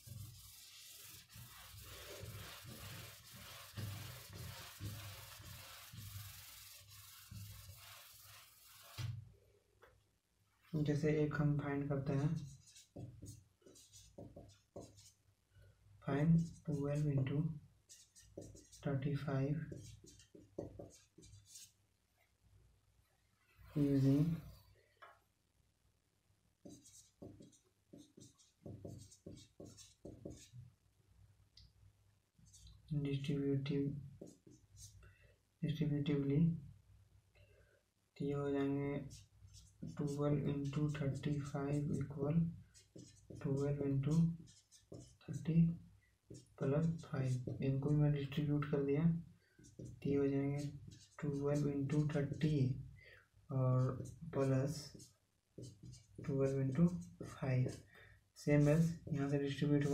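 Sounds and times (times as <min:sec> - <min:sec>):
duster wiping whiteboard: 0:00.0 - 0:09.2, 0:12.2 - 0:15.2, 0:17.9 - 0:18.9, 0:19.6 - 0:21.8, 0:23.6 - 0:24.6, 0:26.6 - 0:30.6, 0:38.6 - 0:45.5, 0:46.3 - 0:48.5, 0:49.6 - 0:52.6, 0:53.8 - 0:57.9, 0:58.5 - 0:59.9.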